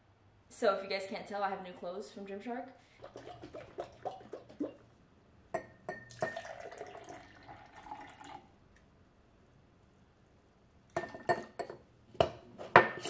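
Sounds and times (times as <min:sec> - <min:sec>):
juice glugging into glass: 0:03.0 - 0:04.8, 0:05.6 - 0:08.5.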